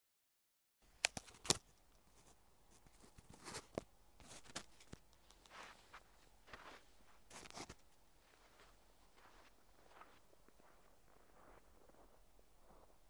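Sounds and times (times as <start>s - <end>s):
soft crunching swishes: 3.0s - 13.0s.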